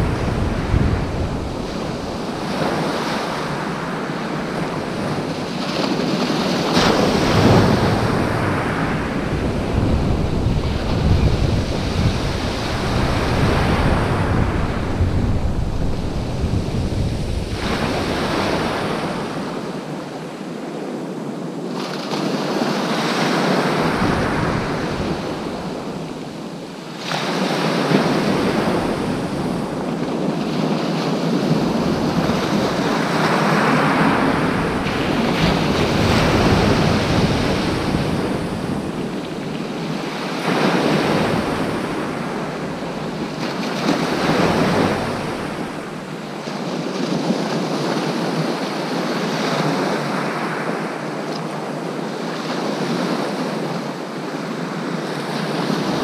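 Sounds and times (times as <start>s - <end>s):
wind buffeting microphone: 0.0s - 50.1s.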